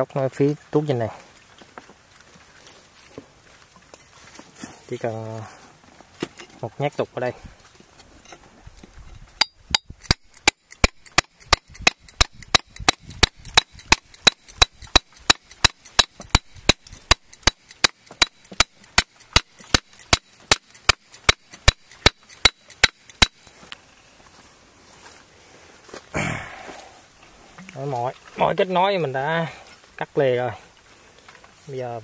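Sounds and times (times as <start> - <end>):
steel bar striking bamboo: 9.4 - 23.6.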